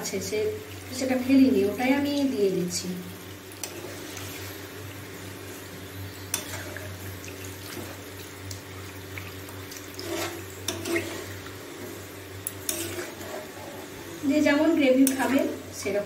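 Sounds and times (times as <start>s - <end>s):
metal spatula scraping pan: 10.0s - 11.4s, 12.6s - 13.9s.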